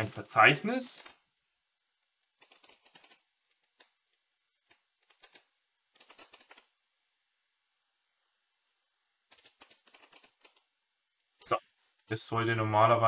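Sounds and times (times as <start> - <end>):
keyboard typing clicks: 4.7 - 6.7.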